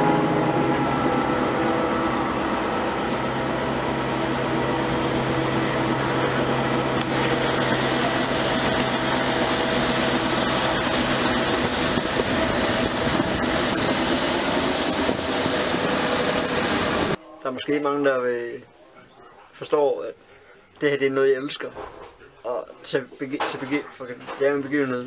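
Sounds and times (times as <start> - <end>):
locomotive engine drone: 0.0 - 17.2
train rolling and wind noise: 0.0 - 17.2.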